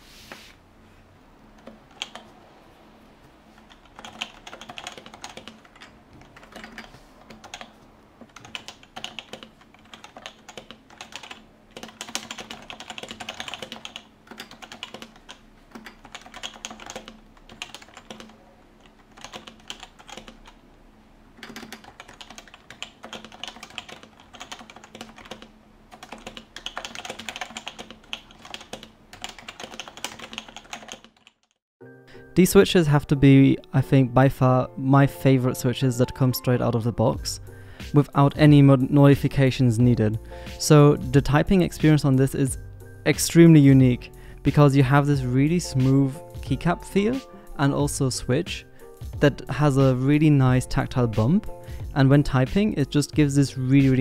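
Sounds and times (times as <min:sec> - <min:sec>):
keyboard typing: 0:01.6 - 0:02.4, 0:03.6 - 0:20.6, 0:21.4 - 0:31.6.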